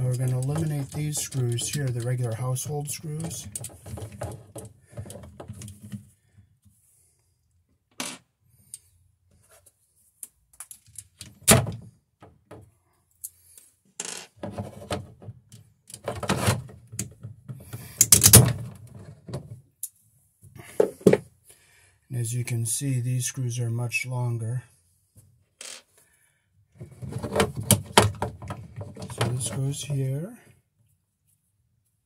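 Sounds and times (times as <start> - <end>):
clicks and metal rattles: 0.0 - 6.0, 14.0 - 20.0, 26.8 - 30.2.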